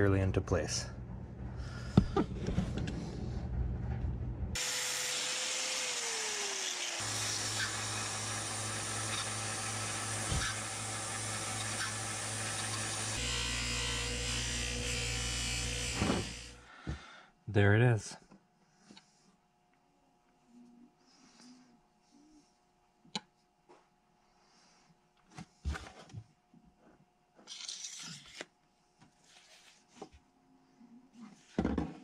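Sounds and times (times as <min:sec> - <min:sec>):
electric bench buffer whining: 0:04.6 - 0:16.6.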